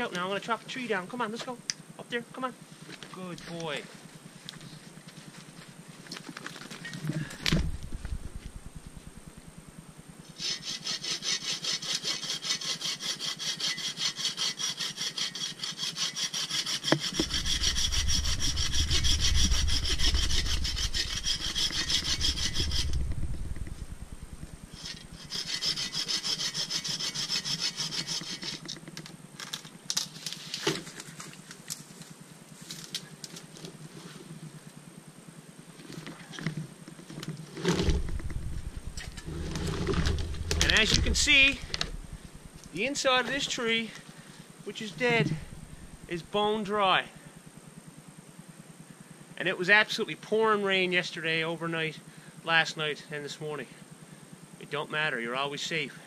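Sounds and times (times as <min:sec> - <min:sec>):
low rumble: 0:07.4 - 0:09.8, 0:17.2 - 0:25.3, 0:37.8 - 0:42.8, 0:45.2 - 0:46.3
hand saw cutting wood: 0:10.4 - 0:23.0, 0:24.7 - 0:28.8, 0:39.0 - 0:41.9.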